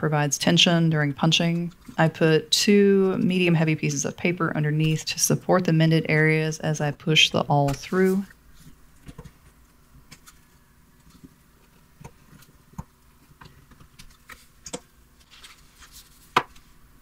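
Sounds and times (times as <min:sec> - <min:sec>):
paper being handled: 0:15.2 - 0:16.8.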